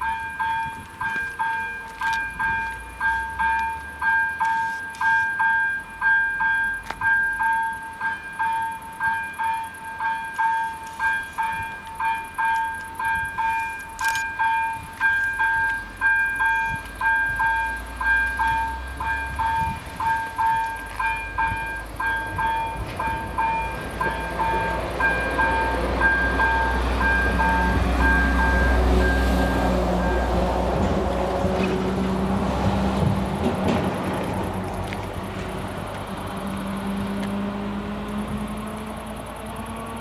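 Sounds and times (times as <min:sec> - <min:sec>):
level crossing bell ringing: 0:00.0 - 0:30.4
approaching train rumble: 0:00.0 - 0:40.0.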